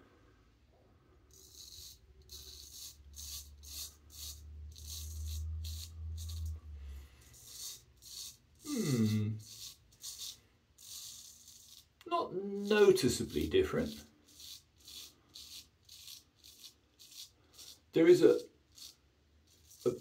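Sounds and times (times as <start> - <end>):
razor scraping stubble: 1.3 - 20.0
vocal murmur: 8.6 - 9.6.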